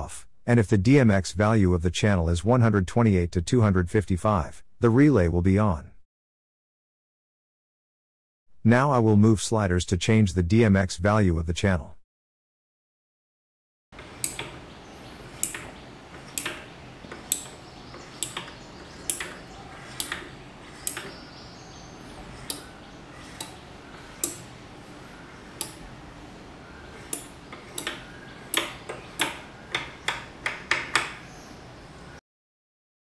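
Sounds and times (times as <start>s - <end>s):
relays clicking: 14.0s - 31.3s.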